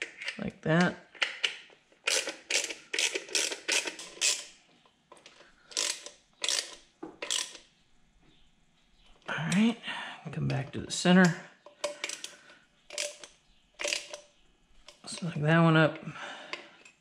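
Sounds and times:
socket ratchet clicking: 1.2s - 4.5s, 5.7s - 7.6s, 11.8s - 14.3s.

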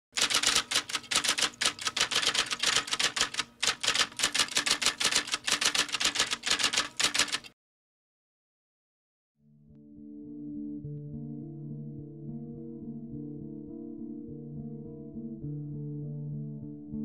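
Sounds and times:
typewriter keys clacking: 0.2s - 7.6s.

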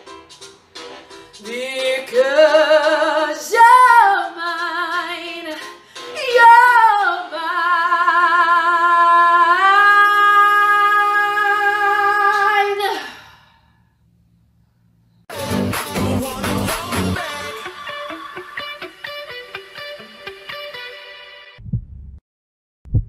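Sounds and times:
woman singing with vibrato: 1.5s - 13.2s.

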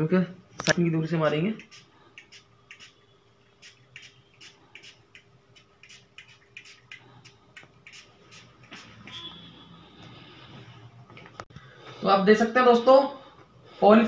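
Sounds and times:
spray bottle puffing mist: 1.6s - 9.4s.

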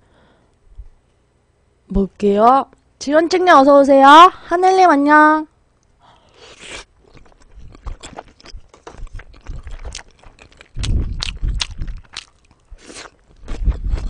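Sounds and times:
person chewing food: 6.2s - 14.0s.

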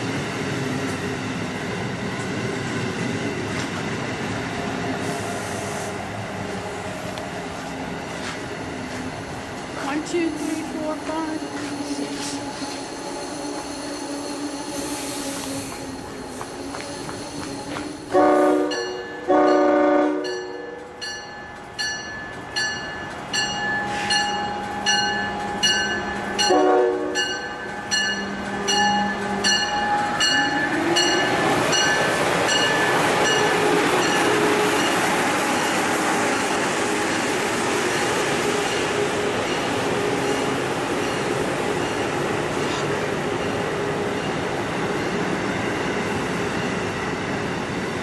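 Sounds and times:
train rushing past: 0.0s - 48.0s
train bell ringing: 9.1s - 47.4s
train horn blasts: 11.4s - 21.0s, 26.4s - 30.2s.

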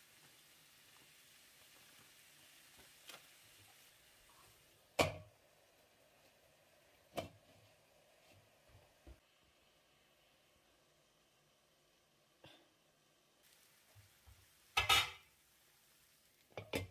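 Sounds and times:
glass lid clanking on pan: 14.8s - 15.3s.

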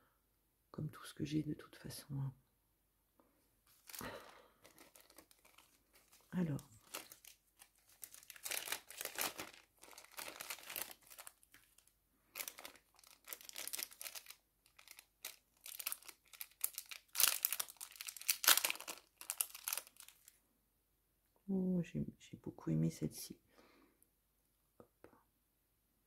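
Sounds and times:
crinkly packaging rustling: 3.7s - 20.4s.

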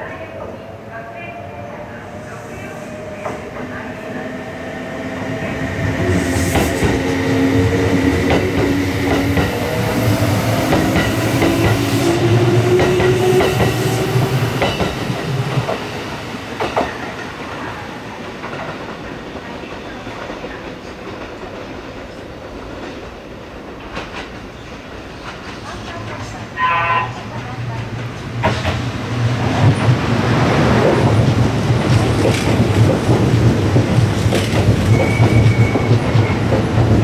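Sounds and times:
low train rumble: 0.0s - 37.0s.

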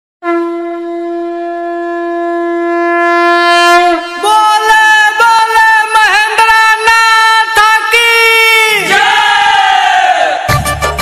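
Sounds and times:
wind instrument melody: 0.2s - 5.0s, 10.5s - 11.0s.

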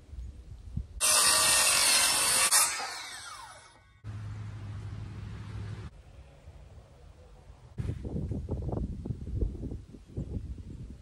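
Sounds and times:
circular saw cutting plywood: 1.0s - 4.1s
saw blade whining down: 1.0s - 4.2s.

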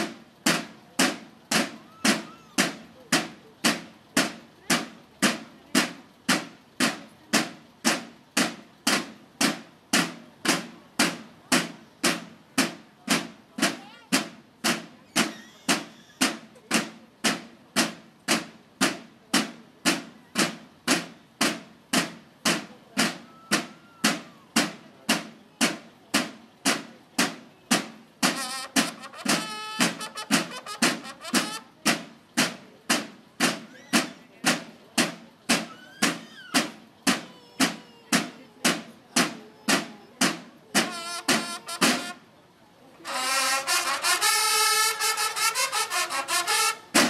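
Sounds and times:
marching drums: 0.0s - 42.3s, 43.0s - 47.0s
bugle: 28.2s - 31.6s, 40.8s - 42.2s, 43.0s - 47.0s.

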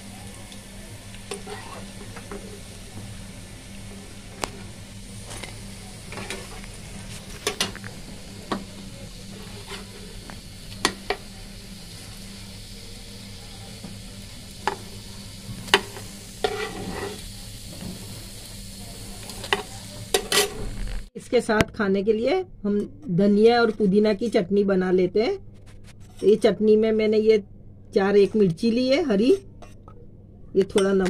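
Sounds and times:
patties sizzling in oil: 0.0s - 21.1s
spatula scraping a pan: 1.3s - 2.7s, 9.3s - 10.2s, 15.7s - 18.1s, 19.2s - 20.8s.

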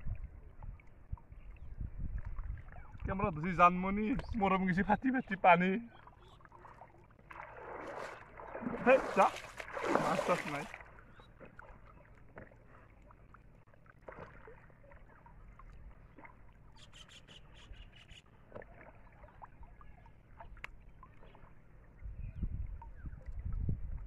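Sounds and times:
small splashes and drips: 0.0s - 17.4s, 18.2s - 24.0s
water sloshing and trickling: 0.0s - 24.0s.

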